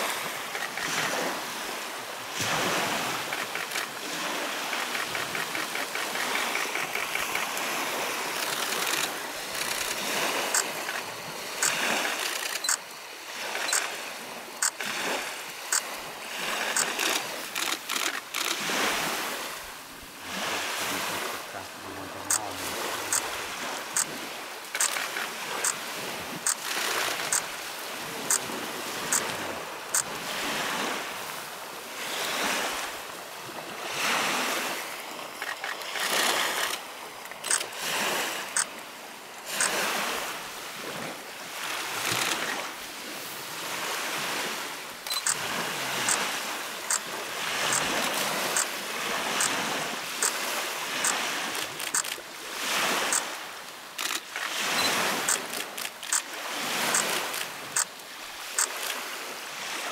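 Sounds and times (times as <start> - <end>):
waves lapping on gravel shore: 0.0 - 59.9
camera shutter clicking: 0.5 - 1.1, 3.2 - 7.7, 8.3 - 12.9, 13.6 - 13.9, 14.6 - 14.9, 16.7 - 18.6, 23.1 - 23.3, 24.7 - 25.8, 26.5 - 27.5, 35.4 - 37.7, 42.0 - 42.6, 45.1 - 45.4, 51.0 - 52.2, 54.0 - 56.3, 56.9 - 57.9, 58.6 - 59.0.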